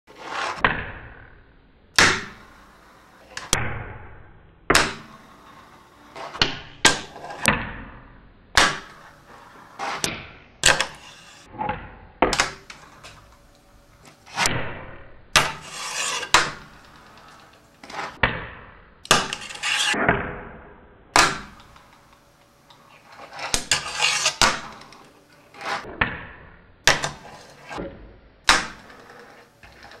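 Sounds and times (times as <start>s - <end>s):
fingerboard scraping and rolling: 0.1s - 0.7s, 4.7s - 7.5s, 8.8s - 11.8s, 15.4s - 18.2s, 19.2s - 20.0s, 22.8s - 26.0s, 27.0s - 30.0s.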